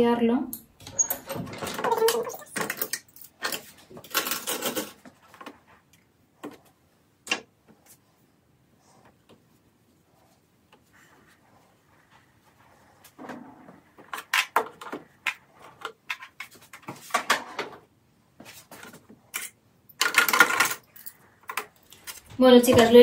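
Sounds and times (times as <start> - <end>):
small items clattering on plastic: 1.7 - 5.1, 18.8 - 23.0.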